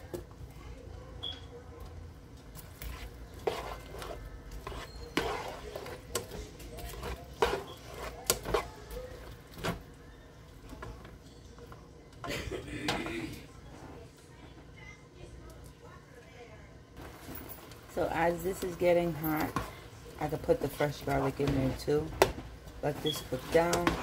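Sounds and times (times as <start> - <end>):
spatula scraping frying pan: 2.8 - 8.8.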